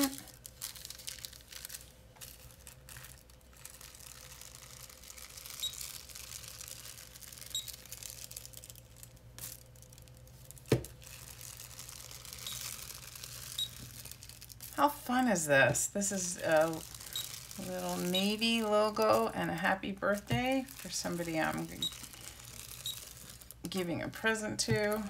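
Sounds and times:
tissue paper rustling: 0.0 - 25.0.

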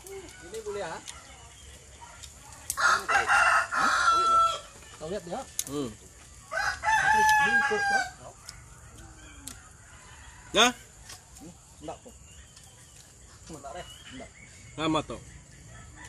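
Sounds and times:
rooster crowing: 2.7 - 4.9, 6.4 - 11.0, 15.5 - 16.0.

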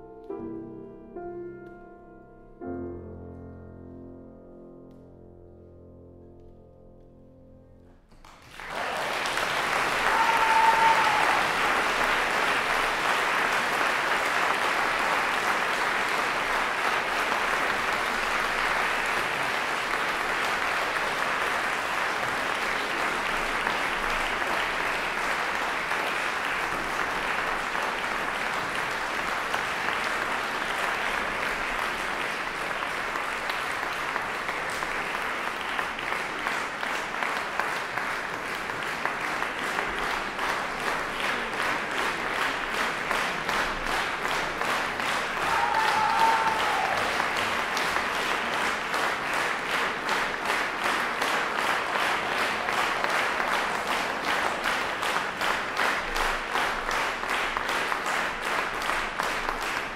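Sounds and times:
piano chord: 0.0 - 8.1
audience applause: 8.1 - 59.9.

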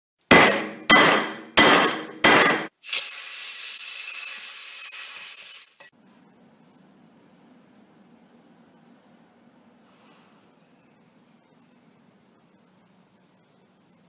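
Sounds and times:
sharp metallic clanks: 0.3 - 2.7
hot metal sizzling in water: 2.7 - 5.9.

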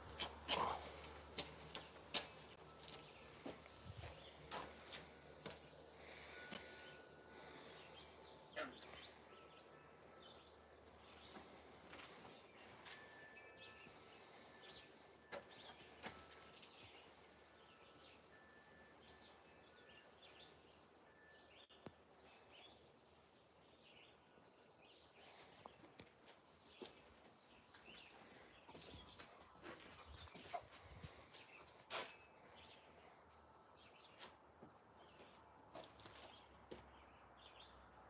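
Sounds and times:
distant bird chirps: 0.0 - 26.0.

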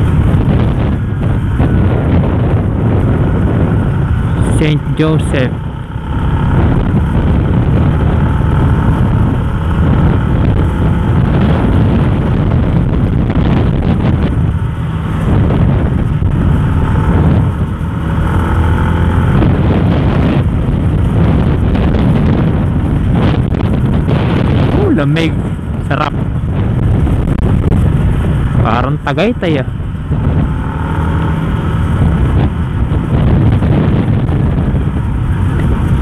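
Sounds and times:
motorcycle running: 0.0 - 36.0
wind noise on microphone: 0.0 - 36.0.

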